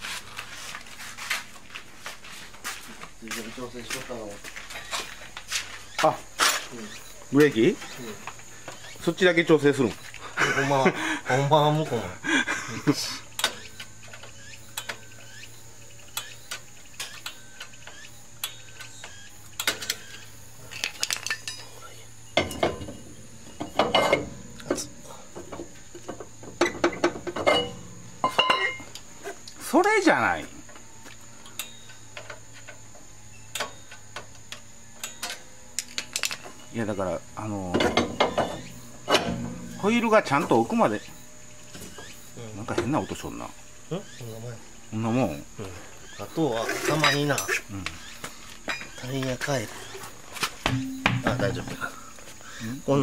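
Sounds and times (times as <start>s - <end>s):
brake drum clinking and scraping: 18.4s - 29.8s, 37.6s - 41.0s, 46.5s - 47.7s, 48.6s - 52.3s.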